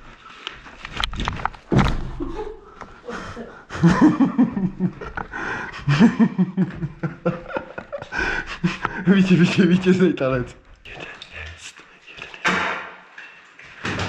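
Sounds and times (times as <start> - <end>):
men laughing: 2.2 - 10.1.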